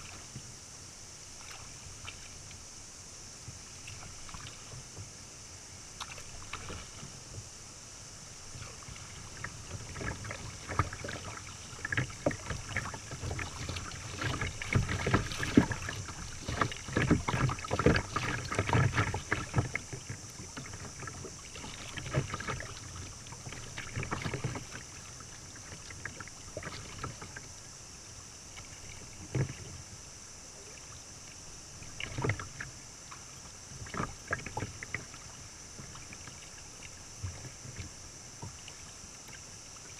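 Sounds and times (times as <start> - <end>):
steady high hiss: 0.0 - 9.4
water splashing against kayak: 0.0 - 39.9.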